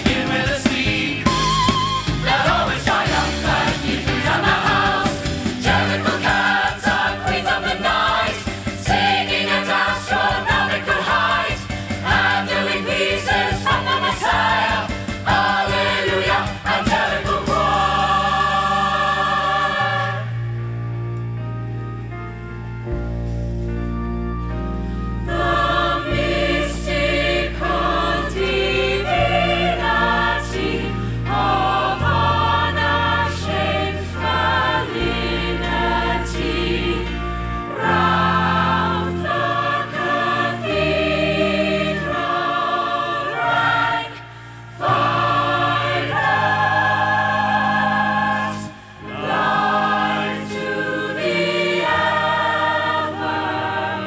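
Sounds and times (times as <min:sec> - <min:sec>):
chorus singing harmonies: 0:00.0 - 0:21.4, 0:24.7 - 0:54.0
musical accompaniment: 0:00.0 - 0:54.0
low held bass notes: 0:17.2 - 0:42.3.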